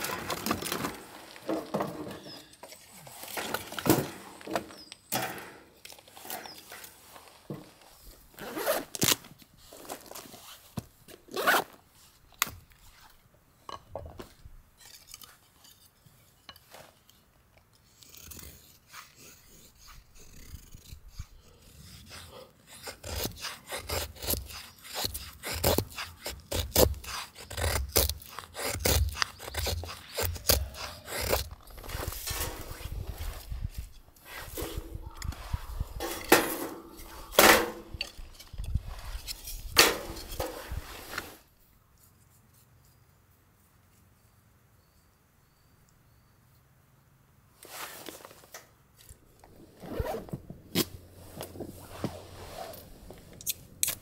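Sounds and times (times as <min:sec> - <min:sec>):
knife scraping wood: 0:14.8 - 0:43.0, 0:49.9 - 0:54.0.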